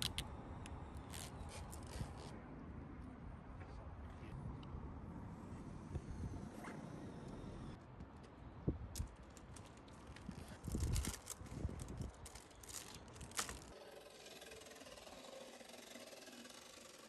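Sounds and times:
small sharp clicks and crackles: 8.9s - 13.8s.

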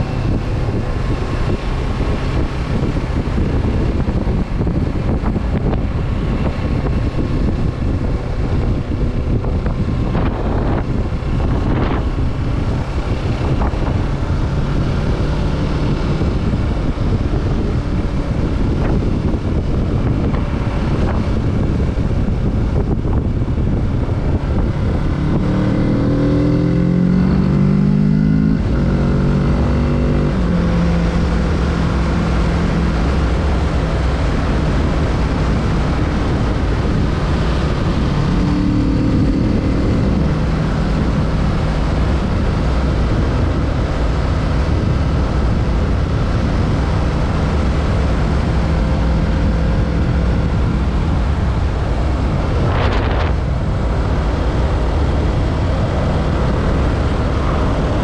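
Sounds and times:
motorcycle engine running: 0.0s - 58.0s
wind rush on microphone: 0.0s - 58.0s.

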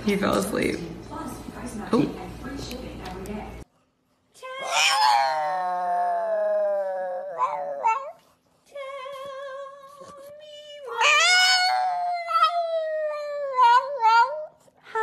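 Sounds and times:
dog howling: 4.5s - 8.2s, 10.9s - 14.5s.

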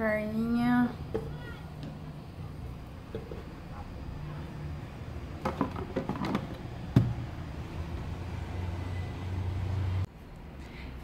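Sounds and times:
cooler lid rattling knocks: 5.4s - 7.2s.

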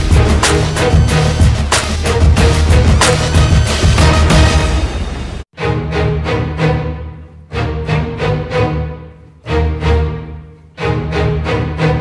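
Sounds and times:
loud music with heavy bass: 0.0s - 5.4s.

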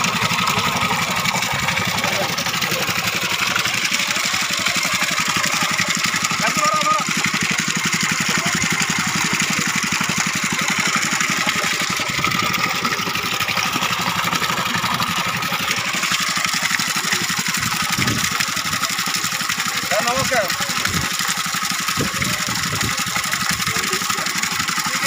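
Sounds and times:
small engine running: 0.0s - 25.0s
water jets splashing into tank: 0.0s - 25.0s.

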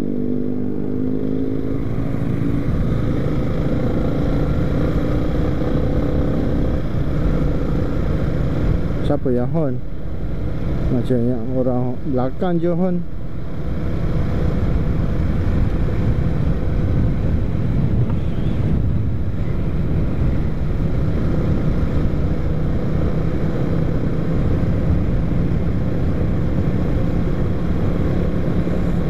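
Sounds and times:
motorcycle engine cruising: 0.0s - 29.0s
wind rush on microphone: 13.7s - 29.0s.

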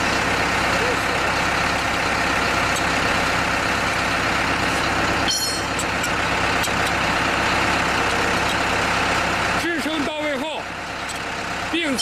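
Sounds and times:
drilling rig engine running: 0.0s - 12.0s
wrench clinking on steel: 5.2s - 6.1s.

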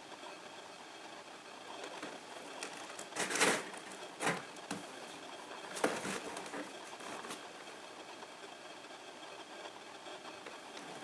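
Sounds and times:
low background hum: 0.0s - 11.0s
cats scuffling: 1.8s - 7.7s.

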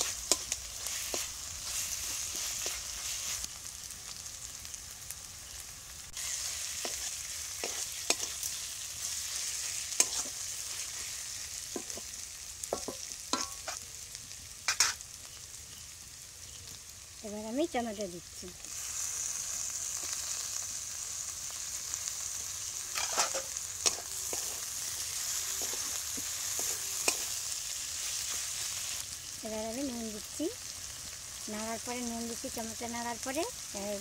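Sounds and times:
spatula scraping pan: 0.0s - 3.5s, 6.2s - 8.6s, 9.4s - 11.1s, 22.9s - 27.4s
onions sizzling in hot oil: 0.0s - 34.0s
spatula clacking on pan: 6.8s - 8.3s, 12.7s - 13.8s.

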